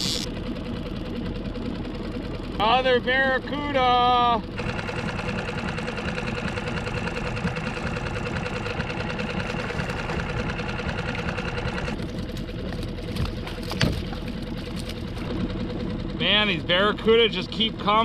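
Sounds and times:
high mechanical whine: 0:00.0 - 0:00.6
outboard motor running: 0:00.0 - 0:18.0.

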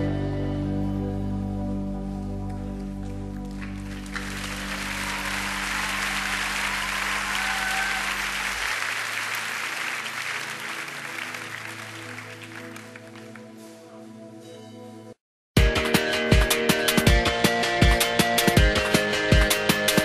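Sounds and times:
crowd applauding: 0:02.8 - 0:13.6.

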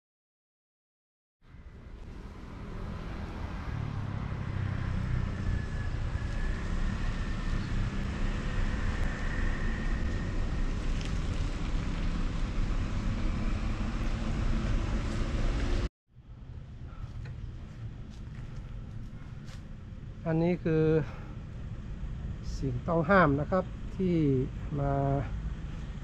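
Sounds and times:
low street rumble: 0:01.4 - 0:26.0
faint wavering whine: 0:04.7 - 0:12.8.

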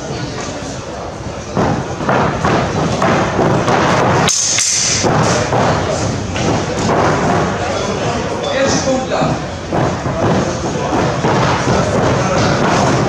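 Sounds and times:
feet stamping on wooden floor: 0:01.5 - 0:04.3, 0:05.0 - 0:07.6, 0:09.2 - 0:13.0
sabre blades clashing: 0:04.2 - 0:05.3.

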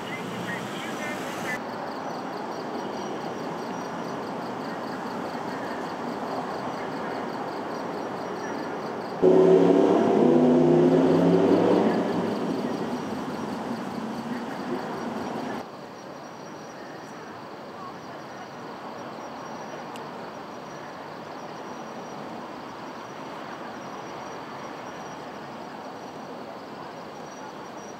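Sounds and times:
passing vehicle: 0:00.0 - 0:01.6, 0:09.2 - 0:15.6
low background noise: 0:00.0 - 0:27.9
high insect chirping: 0:10.4 - 0:16.7.

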